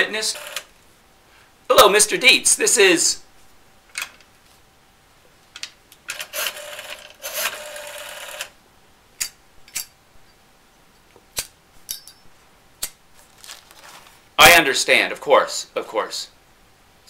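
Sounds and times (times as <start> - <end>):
rotary dial whirring back: 0.4 - 0.7, 6.1 - 8.6.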